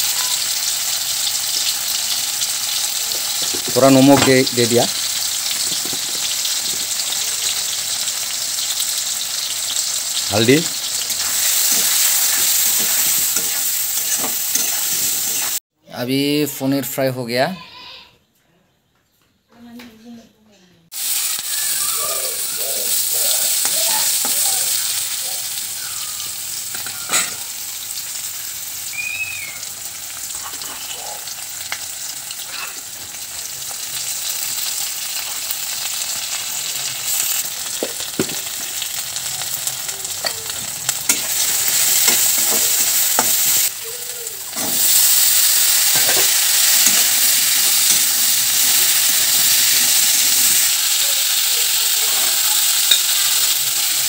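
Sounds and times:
onions sizzling in hot oil: 0:00.0 - 0:15.6, 0:20.9 - 0:54.0
metal spatula scraping pan: 0:11.2 - 0:15.5.

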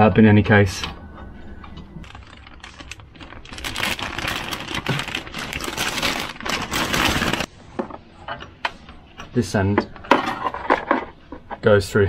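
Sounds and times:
plastic bag rustling: 0:02.0 - 0:07.5.

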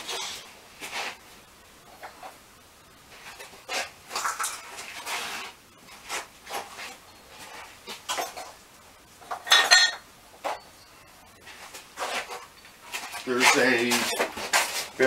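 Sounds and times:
metal tools clinking and clattering: 0:09.3 - 0:10.6
metal clank ringing: 0:09.4 - 0:10.0.

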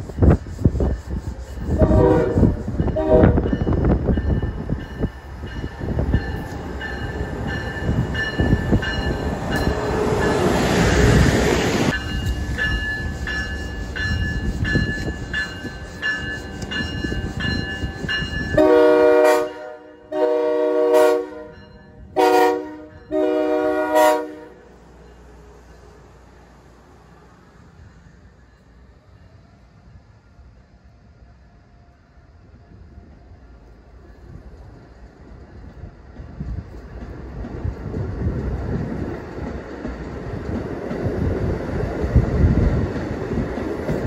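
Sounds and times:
electric train running whine: 0:00.0 - 0:44.0
train horn blasts: 0:01.6 - 0:03.8, 0:18.5 - 0:24.8.

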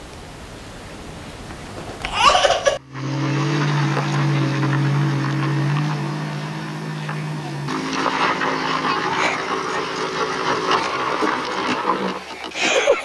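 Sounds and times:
road noise: 0:00.0 - 0:13.0
toddler laughing: 0:02.0 - 0:02.9, 0:12.4 - 0:13.0
vehicle engine running: 0:02.7 - 0:12.5.

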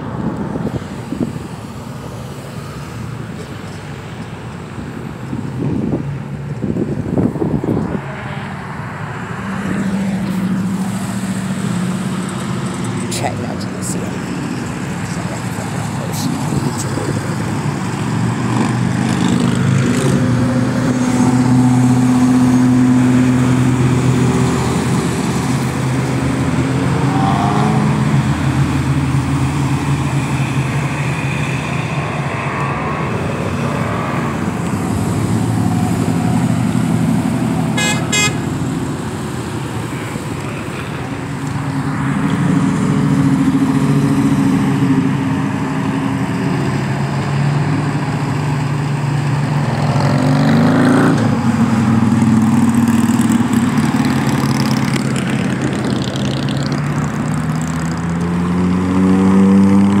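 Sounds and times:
cars driving past: 0:00.0 - 1:00.0
engines revving: 0:00.0 - 1:00.0
car horn toot: 0:37.8 - 0:38.5.

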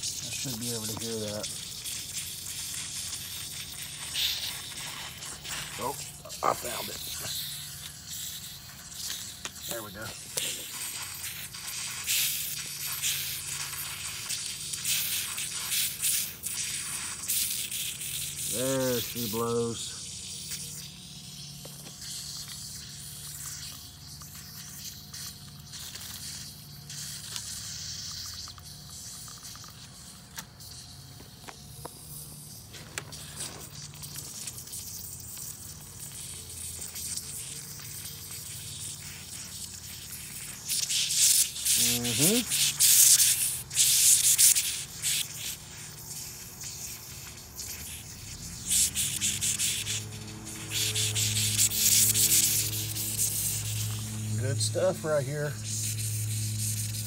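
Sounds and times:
bubbles crackling sizzle: 0:00.0 - 0:57.0
gas hissing from leak: 0:00.0 - 0:57.0.

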